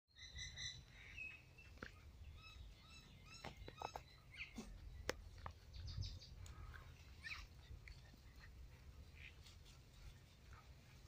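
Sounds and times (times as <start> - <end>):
animal squeaks and chirps: 2.3 - 5.0.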